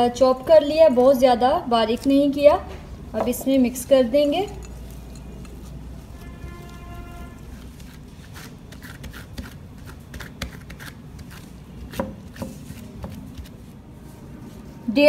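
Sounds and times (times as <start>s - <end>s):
gloves rustling: 3.0s - 15.0s
soft squishes: 4.5s - 14.9s.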